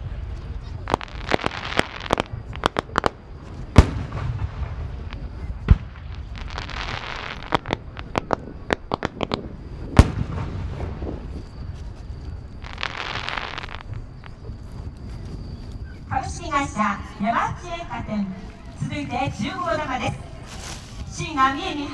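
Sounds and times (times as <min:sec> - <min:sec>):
fireworks bangs and pops: 0:00.4 - 0:12.0, 0:12.6 - 0:14.6.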